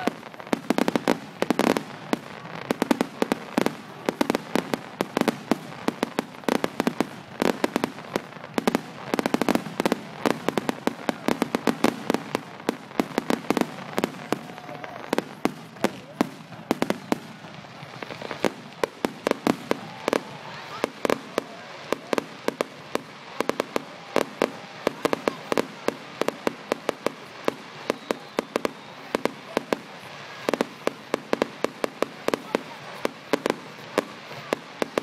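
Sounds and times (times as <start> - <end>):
fireworks bangs and crackles: 0.0 - 35.0.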